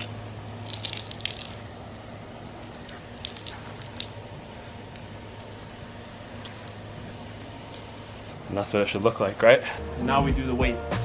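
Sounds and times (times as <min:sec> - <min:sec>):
water drips and splashes: 0:00.0 - 0:07.0, 0:07.6 - 0:08.2
steady low hum: 0:00.0 - 0:11.0.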